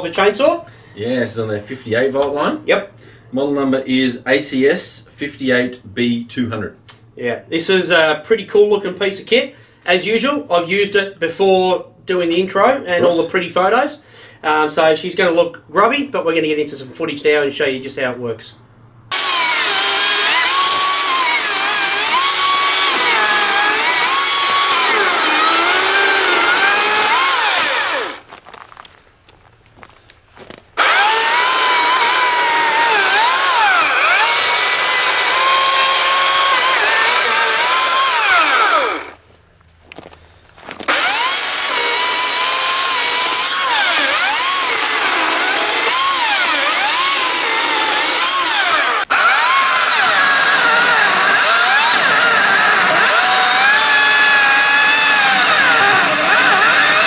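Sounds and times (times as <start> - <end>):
chainsaw cutting wood: 19.1 - 28.4, 30.8 - 39.2, 40.8 - 57.0.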